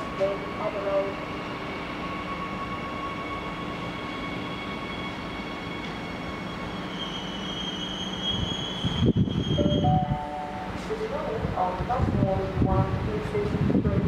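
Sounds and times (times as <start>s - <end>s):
train brakes squealing: 0.0s - 10.9s
electric train whining: 0.0s - 13.3s.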